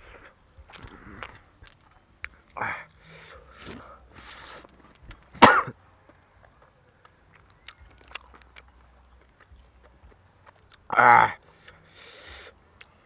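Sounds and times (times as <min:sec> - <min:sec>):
chewing and smacking: 0:00.0 - 0:05.3, 0:06.0 - 0:11.9, 0:12.8 - 0:13.0
man coughing: 0:05.4 - 0:05.8.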